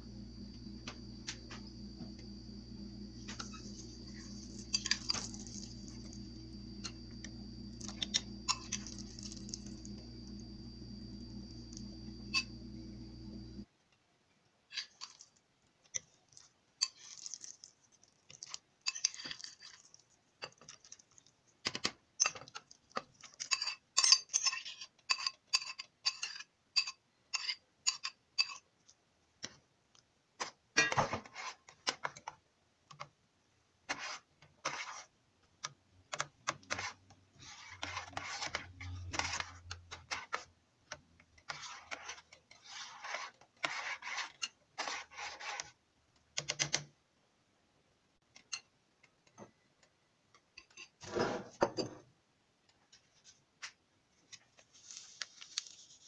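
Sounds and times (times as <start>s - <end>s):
metal spoon stirring in a pot: 3.2s - 10.4s, 16.0s - 21.2s, 22.2s - 28.7s, 33.9s - 35.1s, 36.6s - 40.5s, 41.4s - 45.8s.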